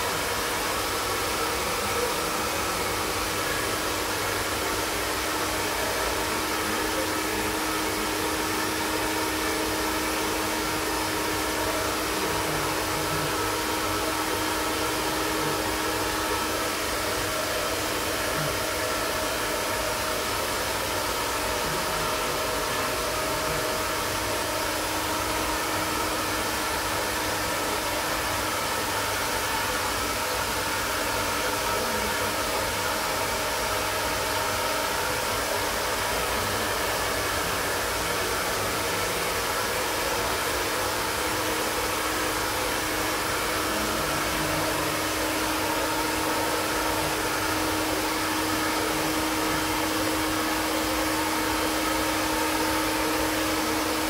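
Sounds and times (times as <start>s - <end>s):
blower rush of air: 0.0s - 54.0s.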